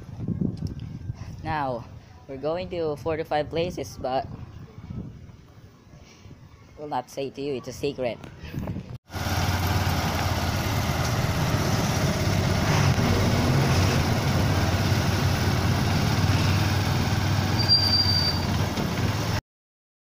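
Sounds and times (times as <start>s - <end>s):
vehicle engine running: 9.1s - 17.7s, 18.3s - 19.4s
brief high squeal: 17.5s - 18.6s.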